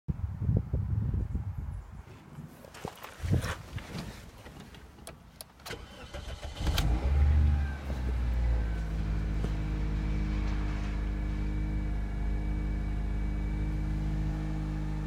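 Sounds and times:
car engine starting and idling: 4.1 - 15.0.

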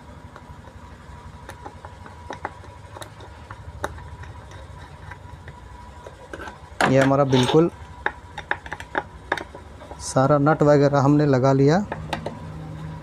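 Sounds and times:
screwdriver clicking and tapping: 1.4 - 7.1, 8.0 - 10.0.

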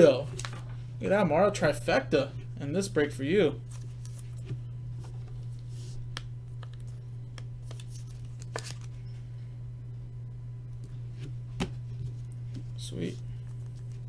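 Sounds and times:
low hum: 0.0 - 14.0
cards sliding and clicking: 3.7 - 8.9.

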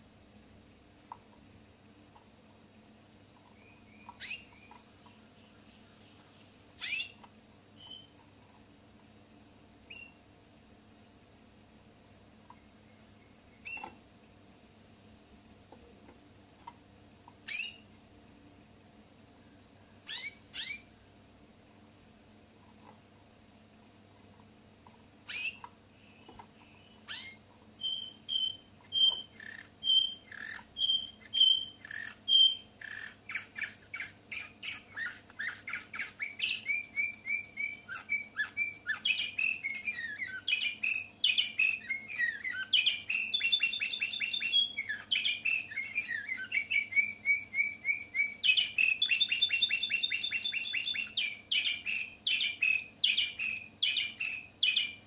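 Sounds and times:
finch singing: 3.4 - 6.0, 6.8 - 8.2, 9.9 - 10.2, 12.5 - 14.0, 17.4 - 18.0, 20.0 - 20.9, 25.2 - 55.0.

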